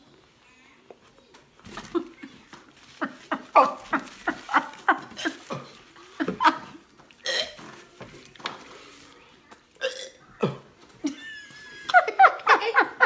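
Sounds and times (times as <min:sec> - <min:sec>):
person gagging and retching: 0:07.2 - 0:07.6, 0:09.8 - 0:10.7.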